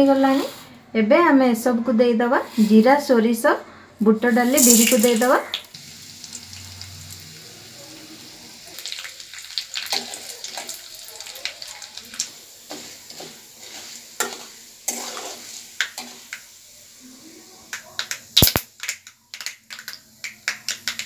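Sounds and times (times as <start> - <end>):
spices sizzling in hot oil: 4.3 - 21.0
spatula scraping pan: 12.2 - 16.4.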